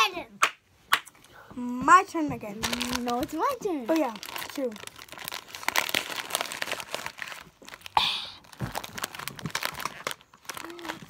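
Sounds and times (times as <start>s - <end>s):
candy bag crinkling: 2.6s - 11.0s.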